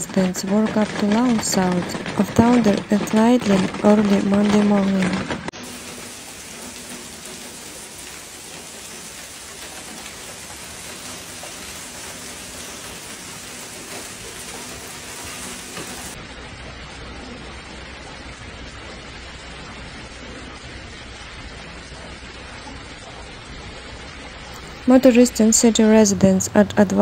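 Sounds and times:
hail and heavy rain pelting: 0:00.0 - 0:16.2.

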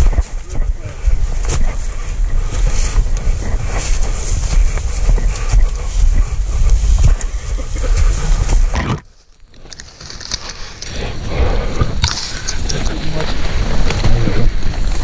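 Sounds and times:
dry leaves and brush crackling: 0:00.0 - 0:11.0
deer dragged through undergrowth: 0:00.0 - 0:15.0
footsteps: 0:00.0 - 0:15.0
rumble on microphone: 0:00.0 - 0:15.0.

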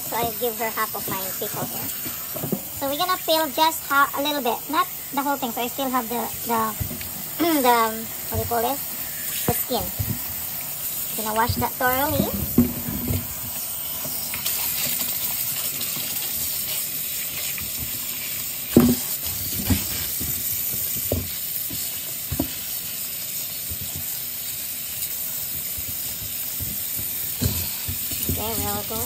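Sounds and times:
tap water running into sink: 0:00.0 - 0:22.8, 0:23.6 - 0:29.0
cucumbers knocking against sink: 0:18.7 - 0:19.9.

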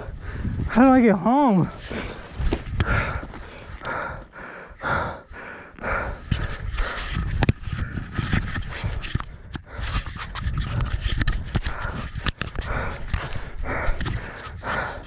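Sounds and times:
person breathing hard: 0:00.0 - 0:00.7, 0:01.7 - 0:10.1, 0:10.8 - 0:15.0
camera handling rubbing and clicking: 0:06.3 - 0:14.7.

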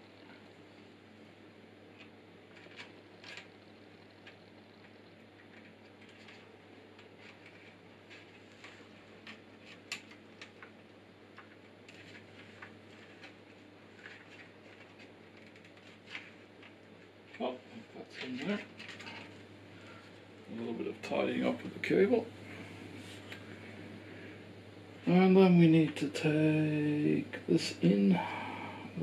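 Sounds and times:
low steady hum: 0:00.0 - 0:29.0
cables ticking and tapping: 0:01.9 - 0:17.5.

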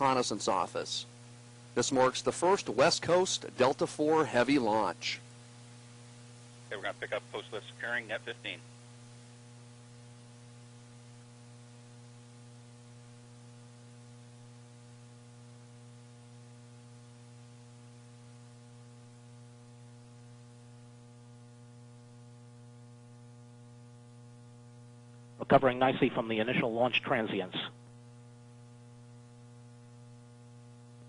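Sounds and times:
faint hiss: 0:00.0 - 0:09.0
electrical mains hum: 0:00.0 - 0:31.0.

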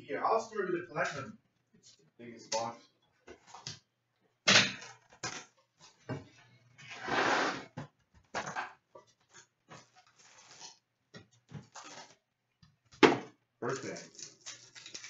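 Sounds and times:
box sliding scrape: 0:06.8 - 0:07.8.

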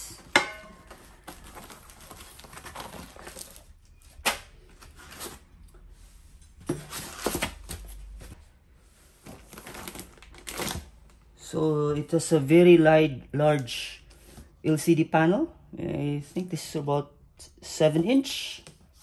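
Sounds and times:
packaging scraping: 0:00.8 - 0:05.5, 0:06.8 - 0:08.1, 0:09.2 - 0:11.0
packaging rustling: 0:00.8 - 0:05.6, 0:09.2 - 0:11.2.

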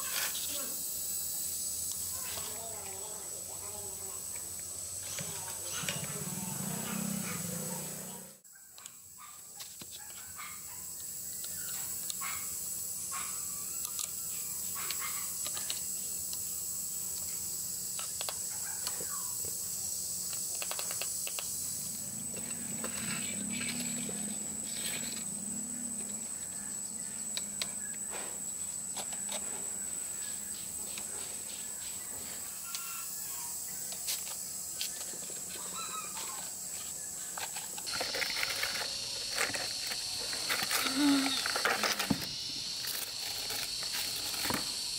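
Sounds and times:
high-pitched background whine: 0:00.0 - 0:08.4, 0:10.4 - 0:44.9
birds: 0:35.0 - 0:37.3.

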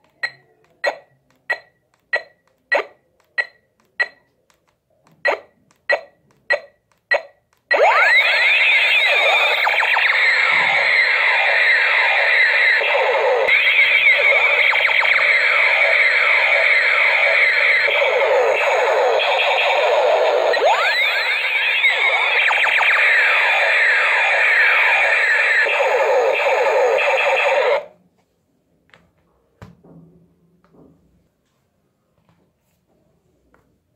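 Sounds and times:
toy ray gun laser effects: 0:05.3 - 0:27.9.

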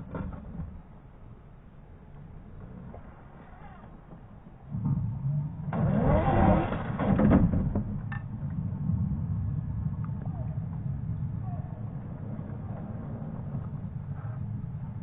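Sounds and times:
electric motor and gearbox whining: 0:03.0 - 0:08.3.

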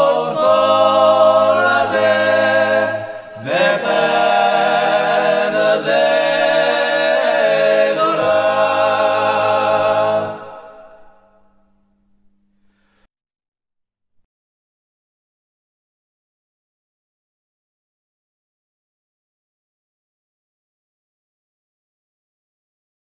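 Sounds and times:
men singing a cappella harmony: 0:00.0 - 0:11.0.

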